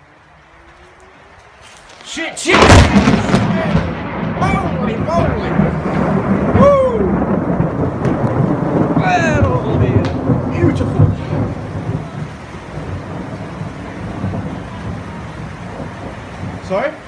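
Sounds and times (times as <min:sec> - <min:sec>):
thunder rumbling: 0:00.0 - 0:17.0.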